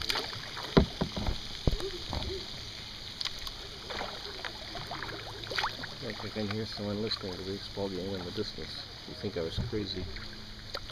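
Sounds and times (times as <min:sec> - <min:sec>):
water sloshing off paddle: 0:00.0 - 0:02.4, 0:03.2 - 0:06.8.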